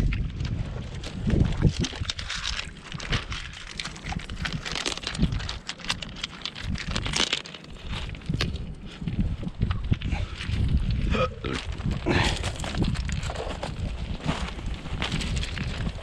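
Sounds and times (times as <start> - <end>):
footsteps crunching on pebbles: 0.0 - 16.0
net scraping over stones: 0.1 - 9.7, 10.4 - 16.0.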